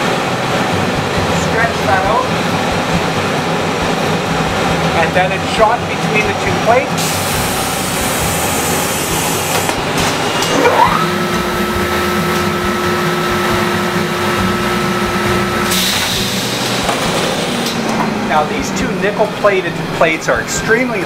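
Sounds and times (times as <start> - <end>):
machine whine: 0.0 - 21.0.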